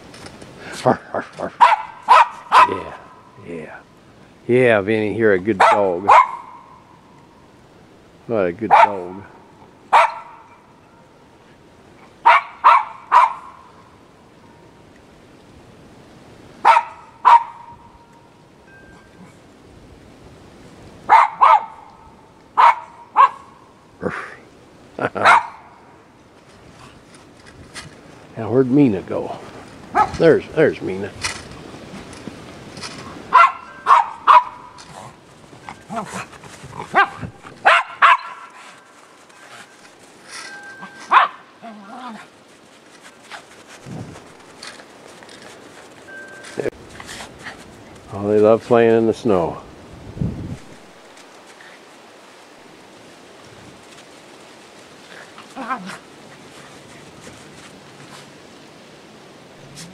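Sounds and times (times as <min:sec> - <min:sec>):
dog barking: 0:01.5 - 0:03.2, 0:05.6 - 0:06.8, 0:08.7 - 0:09.0, 0:09.9 - 0:10.5, 0:12.2 - 0:13.6, 0:16.6 - 0:17.8, 0:21.1 - 0:21.9, 0:22.6 - 0:23.5, 0:25.2 - 0:25.7, 0:29.9 - 0:30.2, 0:33.3 - 0:34.8, 0:37.0 - 0:38.6, 0:41.0 - 0:41.5.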